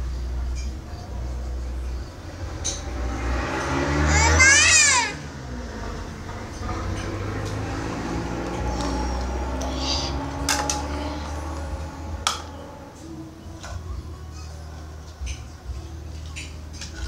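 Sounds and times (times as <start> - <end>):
steady low hum: 5.3 - 16.2.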